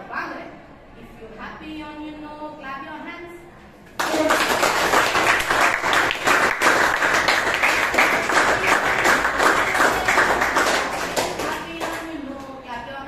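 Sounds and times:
students applauding: 4.0s - 12.1s.

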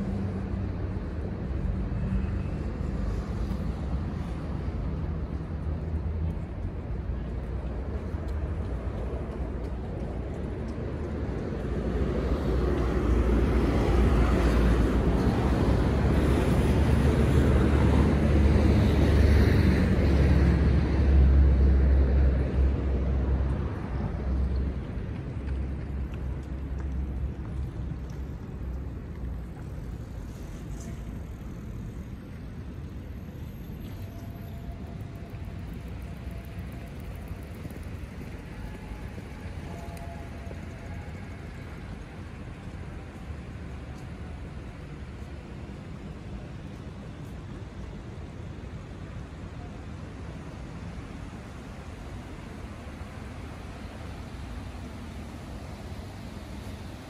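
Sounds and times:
low outdoor rumble: 0.0s - 57.0s.

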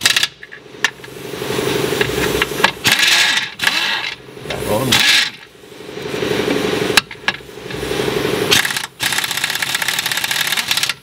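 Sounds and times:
pneumatic impact wrench hammering: 0.0s - 1.1s, 2.0s - 4.2s, 4.9s - 5.5s, 8.5s - 11.0s.

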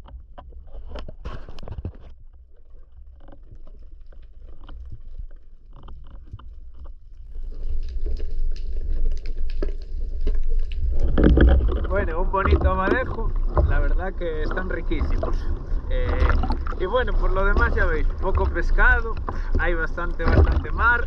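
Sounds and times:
underwater clicks and knocks: 0.0s - 21.0s
underwater low rumble: 0.0s - 21.0s
water sloshing and splashing: 0.0s - 21.0s.

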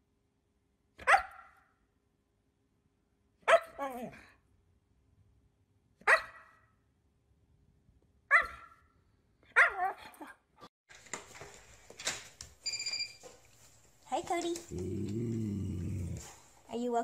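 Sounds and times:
dog barking: 1.0s - 1.7s, 3.5s - 3.8s, 6.0s - 6.7s, 8.3s - 8.9s, 9.5s - 10.0s.

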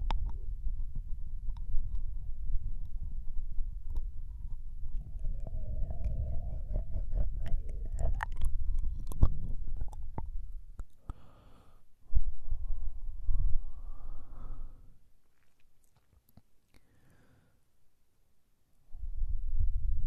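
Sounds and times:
low rubbing rumble: 0.0s - 10.8s, 12.1s - 14.7s
wet licking and mouth clicks: 4.9s - 11.2s, 15.3s - 16.9s
breathy exhale: 11.0s - 11.9s, 13.6s - 15.0s, 16.8s - 17.6s.

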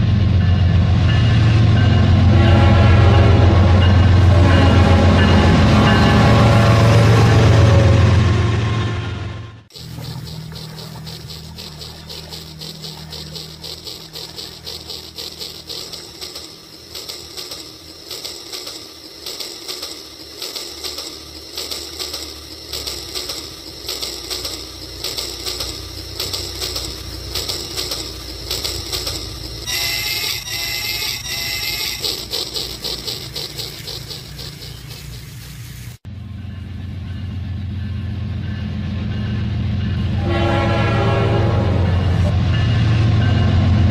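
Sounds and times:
low hum: 2.6s - 39.6s
electronic tone pattern: 9.7s - 35.2s
toy train clicking on track: 9.7s - 36.0s.

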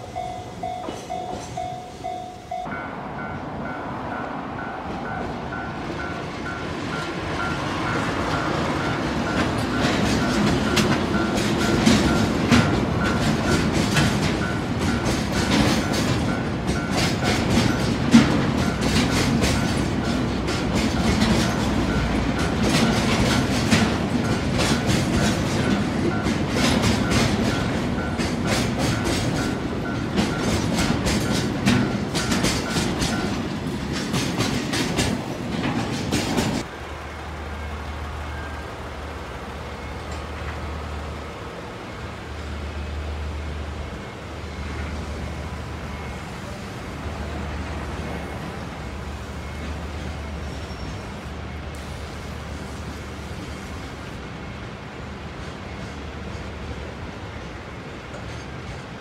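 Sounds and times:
crossing warning bell ringing: 0.0s - 52.4s
diesel locomotive engine: 0.0s - 59.0s
train wheels clicking over rail joints: 6.0s - 36.8s, 55.2s - 59.0s.

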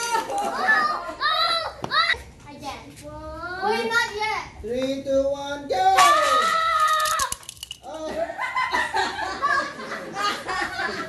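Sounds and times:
children laughing: 0.0s - 1.8s, 6.3s - 11.0s
child squealing: 6.2s - 7.4s.

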